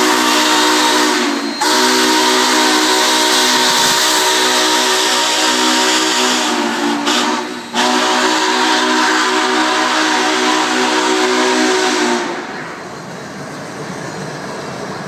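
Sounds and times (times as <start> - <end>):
steam locomotive whistle blasts: 0.0 - 12.8
passing train: 0.0 - 15.0
steam hiss: 0.0 - 15.0.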